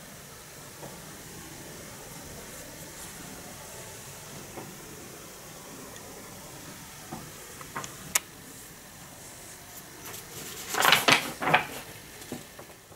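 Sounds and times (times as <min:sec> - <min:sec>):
faint steady hiss: 0:00.0 - 0:12.9
loud paper rustling: 0:09.7 - 0:12.8.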